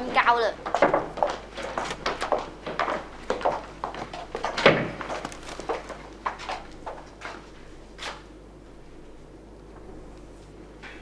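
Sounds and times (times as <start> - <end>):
footsteps on hard floor: 0.0 - 8.2.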